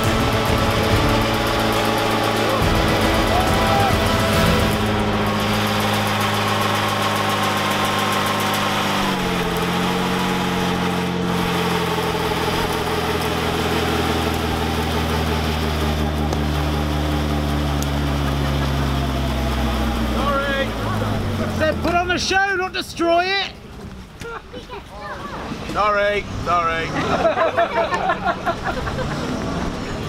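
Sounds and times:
car engine revving: 0.0s - 22.3s, 26.0s - 30.0s
tyres spinning: 0.0s - 23.0s.

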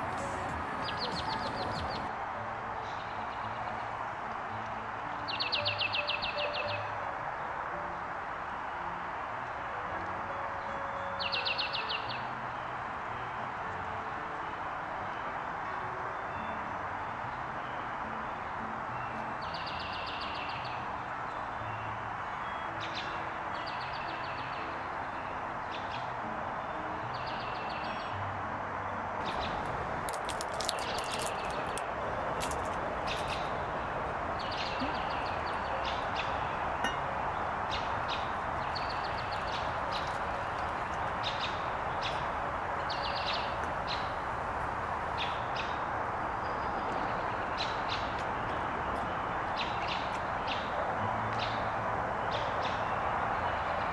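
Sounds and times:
birds chirping: 0.0s - 2.1s, 29.2s - 50.7s
rain hissing: 29.2s - 34.4s.

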